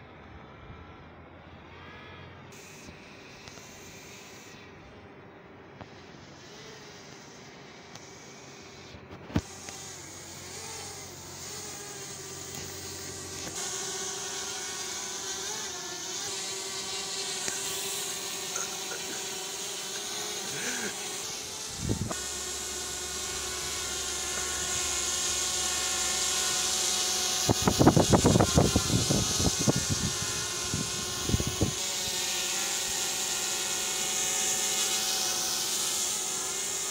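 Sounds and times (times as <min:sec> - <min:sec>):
drone propellers whining: 0:05.8 - 0:36.9.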